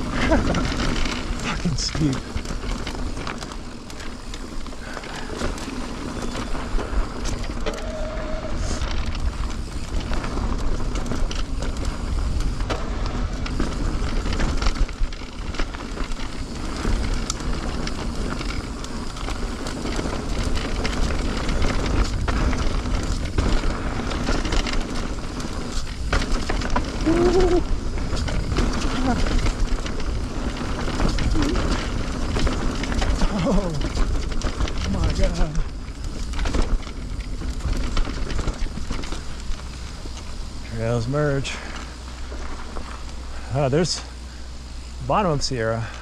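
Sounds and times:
wind rumble on microphone: 0.0 - 43.4
bike clattering over bumps: 0.0 - 46.0
tyres crunching over dirt: 0.0 - 46.0.

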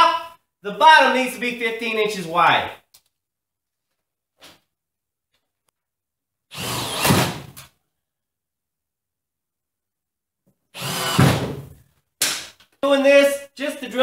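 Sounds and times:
cordless drill boring through metal: 6.5 - 7.4, 10.8 - 11.4.

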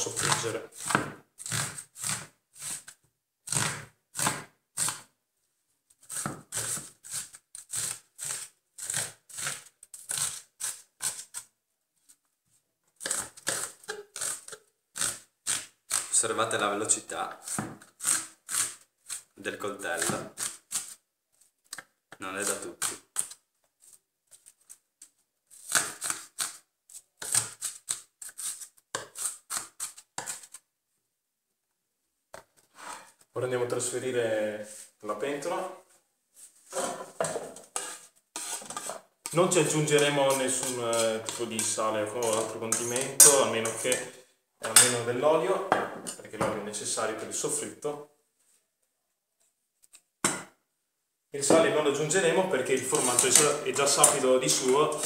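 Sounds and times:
knife chopping on wooden board: 0.2 - 1.2.

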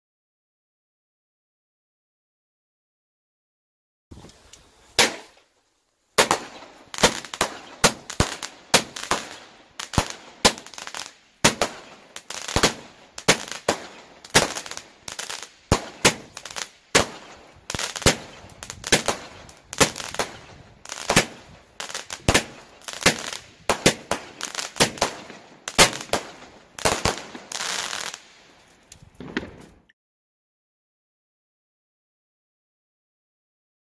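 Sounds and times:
firework shots firing: 5.0 - 5.4, 6.2 - 28.2
firework crackle: 6.2 - 29.8.

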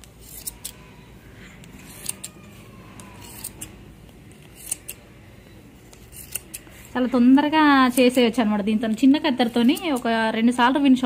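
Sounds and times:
scissors snipping hair: 0.0 - 0.8, 1.6 - 5.0, 5.9 - 6.8, 8.8 - 10.2.

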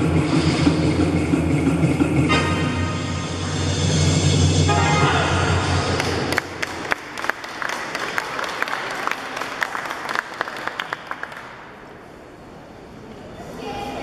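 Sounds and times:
dance music: 0.0 - 6.4
audience applauding: 5.8 - 11.8.

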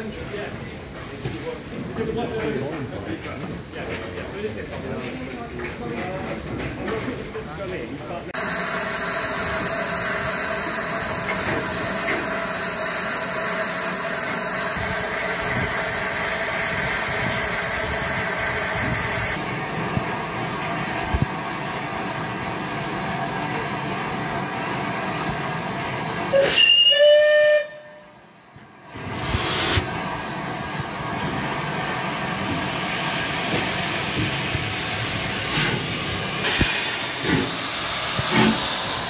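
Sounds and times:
steam hissing: 8.4 - 21.4, 22.1 - 27.6, 28.9 - 39.0
steam locomotive whistle: 26.3 - 28.3.

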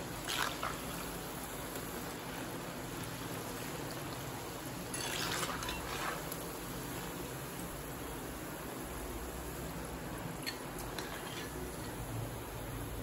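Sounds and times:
ladle stirring in oil: 0.0 - 7.7, 10.4 - 12.1
fritters sizzling in hot oil: 0.0 - 13.0.

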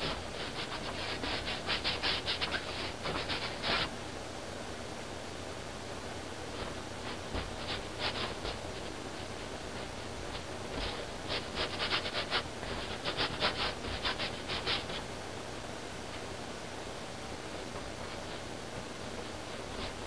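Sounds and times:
paintbrush strokes on canvas: 0.0 - 3.9, 6.6 - 15.1.

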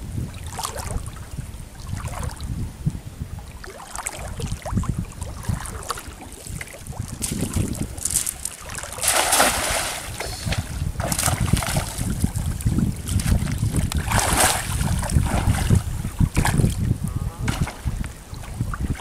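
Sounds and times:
wind rumble on microphone: 0.0 - 19.0
water sloshing: 3.4 - 19.0
net splashing into water: 5.6 - 12.4, 13.1 - 15.8.

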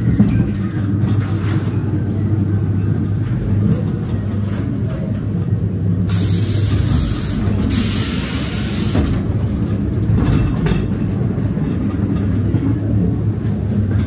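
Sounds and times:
ride car rumbling on track: 0.0 - 14.0
loud hiss: 6.1 - 9.2.

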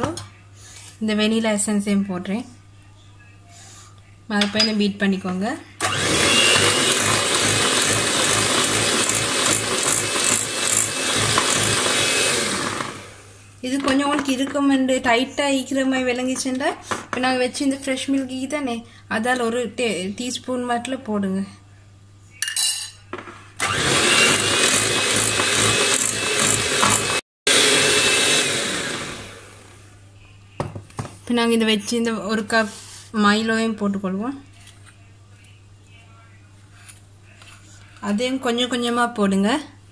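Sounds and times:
electric hand mixer running: 5.8 - 13.4, 23.6 - 29.9.

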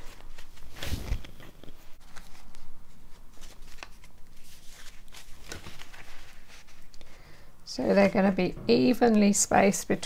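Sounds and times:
paper rustling: 0.0 - 7.0.

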